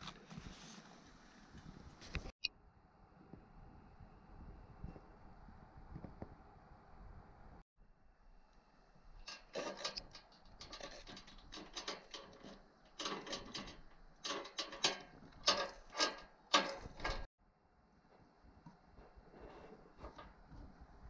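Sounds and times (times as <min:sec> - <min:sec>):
objects clicking and rattling: 0:09.2 - 0:17.3.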